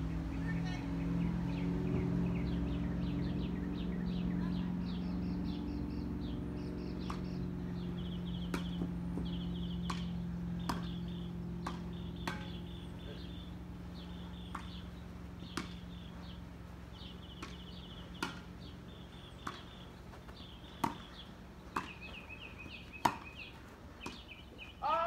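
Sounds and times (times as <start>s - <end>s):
steady low hum: 0.0s - 24.8s
tennis ball knocks: 7.0s - 7.4s, 8.4s - 11.0s, 11.6s - 12.7s, 14.4s - 14.8s, 15.4s - 15.9s, 17.3s - 18.6s, 19.3s - 19.8s, 20.7s - 22.1s, 22.7s - 24.2s
bird chirping and trilling: 17.0s - 25.0s.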